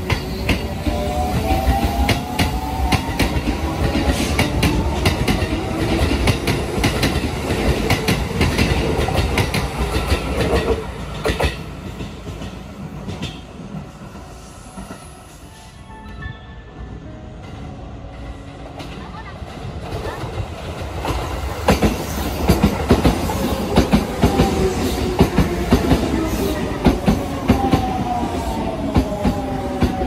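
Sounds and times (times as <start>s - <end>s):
train wheels clicking over rail joints: 0.0s - 13.6s.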